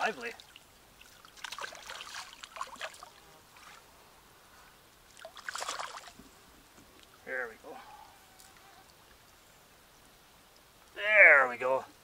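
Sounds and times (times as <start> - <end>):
fish splashing at water surface: 0.4 - 3.8, 5.1 - 6.2.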